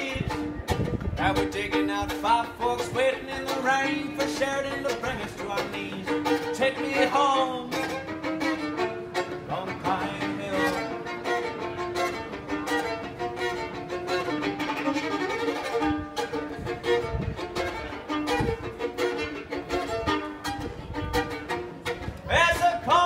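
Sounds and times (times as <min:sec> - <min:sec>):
fiddle melody: 0:00.0 - 0:23.0.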